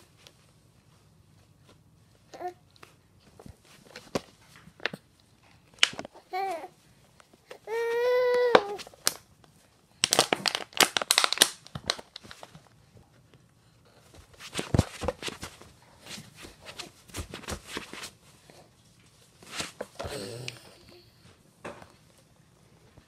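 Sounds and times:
plastic bottle crinkling: 0:10.0 - 0:12.6.

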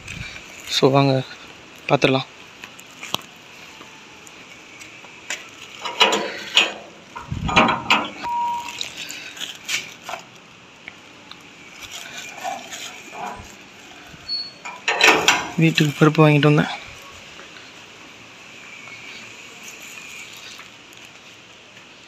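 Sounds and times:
steel gate latch clanking: 0:05.8 - 0:06.9, 0:07.5 - 0:08.2, 0:14.6 - 0:15.6
gate squeak: 0:07.5 - 0:08.8, 0:14.3 - 0:15.5.

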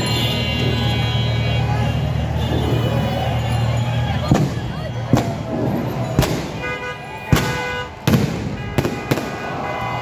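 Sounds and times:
fireworks bursting: 0:07.3 - 0:10.0.

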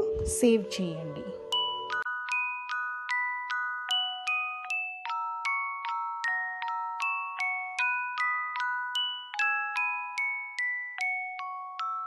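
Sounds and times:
bell-like melody: 0:00.0 - 0:12.0.

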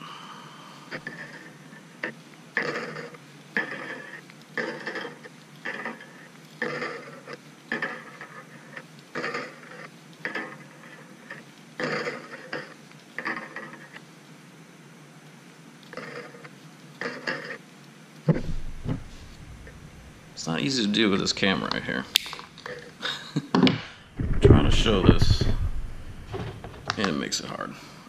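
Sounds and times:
wire twisting scraping creaks: 0:18.3 - 0:22.9, 0:24.0 - 0:27.1.

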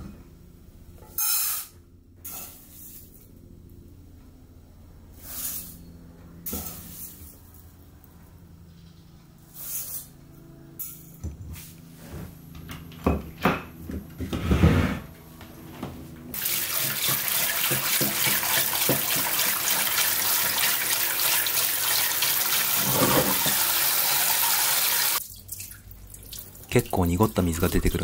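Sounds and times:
tap spraying into a pot: 0:16.4 - 0:19.4.

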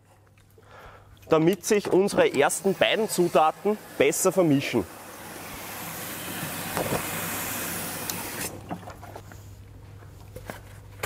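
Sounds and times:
hose water splashing into tank: 0:01.6 - 0:09.2.

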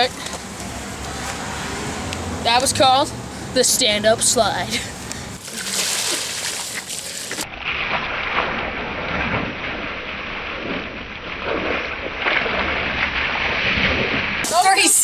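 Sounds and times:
water spraying from sprinkler jets: 0:02.5 - 0:07.5
splashing into pool: 0:05.4 - 0:14.6.

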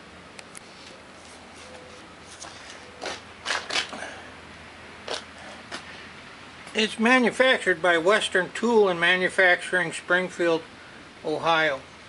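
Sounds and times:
steady low hiss: 0:00.0 - 0:12.0.

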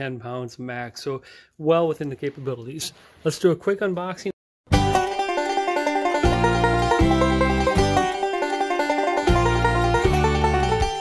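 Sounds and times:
upbeat plucked-string music: 0:04.7 - 0:11.0.

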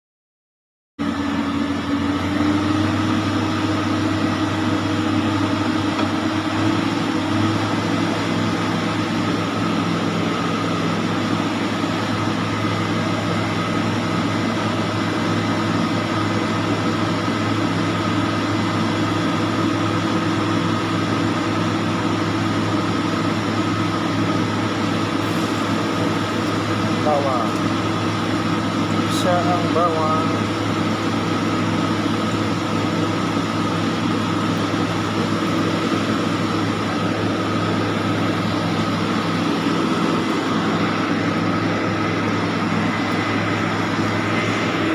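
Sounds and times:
steady mechanical hum: 0:01.0 - 0:44.9
even rushing noise: 0:38.9 - 0:44.9.

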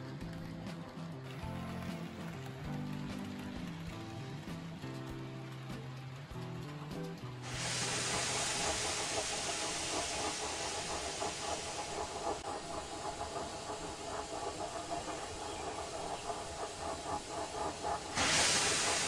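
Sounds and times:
steam hissing: 0:07.4 - 0:19.0.

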